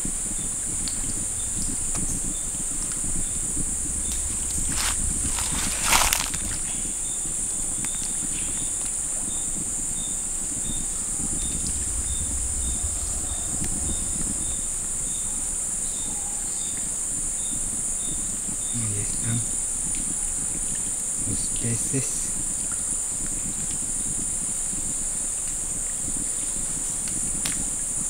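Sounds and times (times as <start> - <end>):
low microphone rumble: 0.0 - 19.2
high-pitched insect chorus: 0.0 - 27.2.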